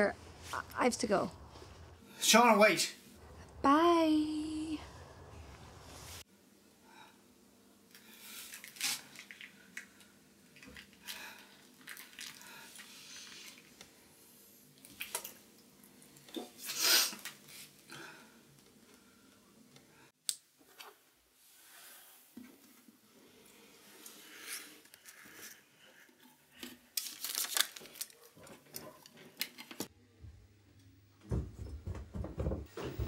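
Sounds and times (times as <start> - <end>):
breaths: 6.8 - 7.3, 11.0 - 11.6, 12.2 - 13.6, 17.9 - 20.1.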